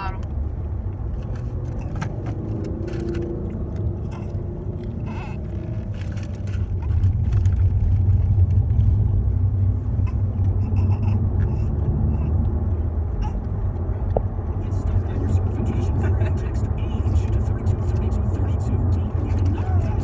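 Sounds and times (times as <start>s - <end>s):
car cabin road rumble: 0.0s - 20.0s
light clicks and rustles: 5.6s - 8.9s.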